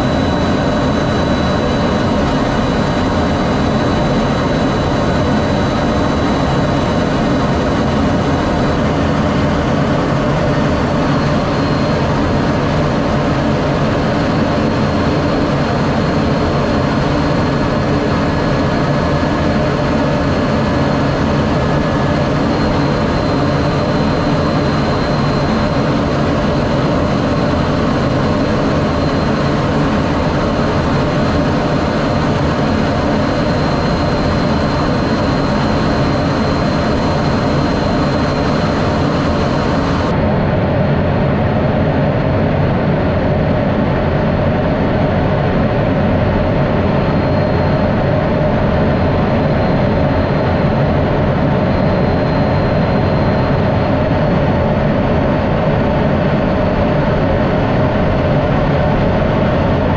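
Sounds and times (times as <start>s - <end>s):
faint high whine: 0.0s - 41.2s, 42.9s - 59.9s
jet cockpit roar: 0.0s - 59.9s.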